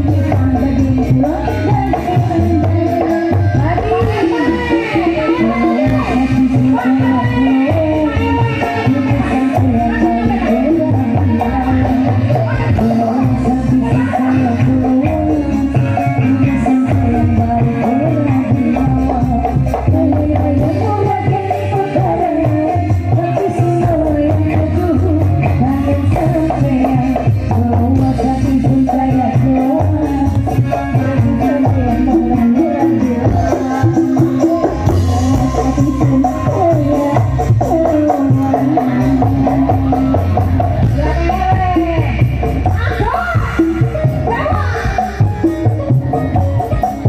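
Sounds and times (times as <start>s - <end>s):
bass: 0.0s - 47.0s
drums and hand percussion: 0.0s - 47.0s
live band with bending melody: 0.0s - 47.0s
wavering melody line: 30.9s - 47.0s.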